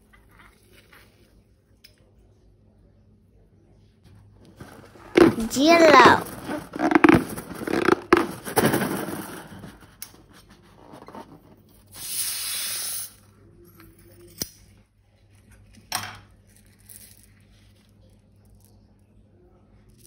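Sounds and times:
rubbing and rustling of balloons: 4.5 - 11.7.

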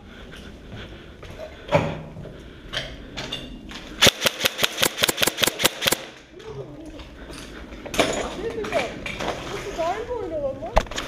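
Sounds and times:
airsoft rifle shots: 4.0 - 6.2.

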